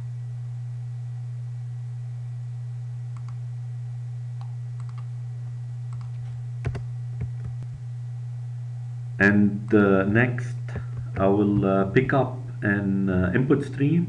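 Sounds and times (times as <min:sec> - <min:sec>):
low hum: 0:00.0 - 0:14.0
keyboard and mouse clicks: 0:04.4 - 0:05.1, 0:05.9 - 0:06.1.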